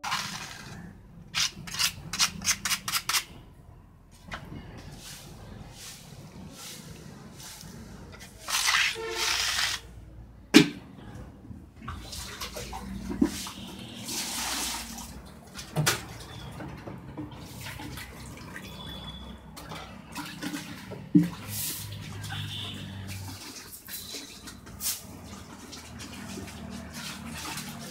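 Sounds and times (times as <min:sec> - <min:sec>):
plaster slurry splashing and sloshing: 0:04.3 - 0:09.9, 0:11.6 - 0:27.9.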